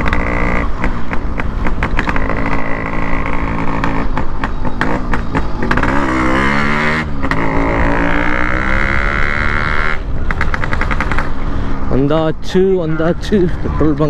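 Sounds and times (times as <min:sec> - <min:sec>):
two-stroke motorcycle engine running: 0:00.0 - 0:11.4
engine crackles: 0:00.0 - 0:14.0.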